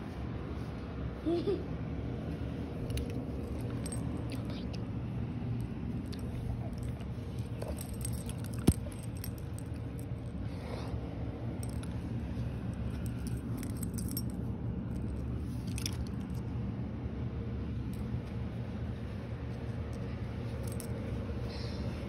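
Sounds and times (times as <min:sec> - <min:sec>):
dog handling noise: 0:02.7 - 0:04.4, 0:05.4 - 0:10.4
light clicks and jingling: 0:02.8 - 0:10.4, 0:11.5 - 0:16.6, 0:17.9 - 0:21.4.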